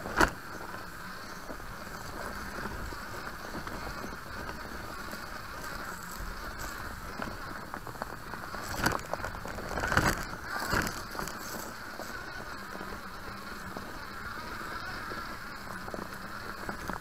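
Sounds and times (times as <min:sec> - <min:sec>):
crunches and knocks in undergrowth: 0:00.0 - 0:14.4
toy car motor and gear hum: 0:00.0 - 0:17.0
tyres on dirt: 0:00.0 - 0:17.0.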